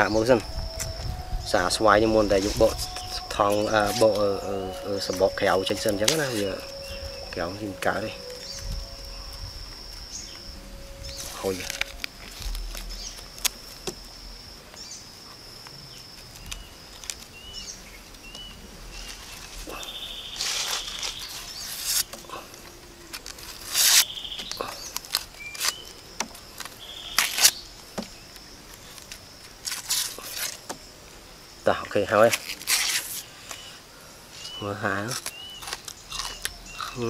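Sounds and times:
birds chirping: 0.0 - 29.0, 33.3 - 37.0
high insect drone: 0.0 - 37.0
onion skin crackling and tearing: 26.6 - 27.6, 32.2 - 33.3, 35.0 - 37.0.

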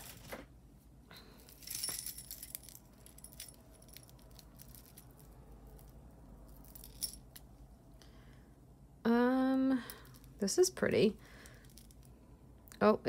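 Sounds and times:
jewelry jingling and clinking: 1.4 - 7.8.

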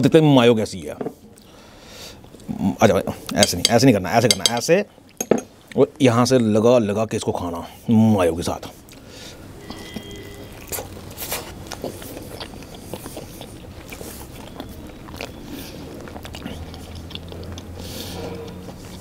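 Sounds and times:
man chewing food: 1.3 - 2.6, 8.8 - 19.0.

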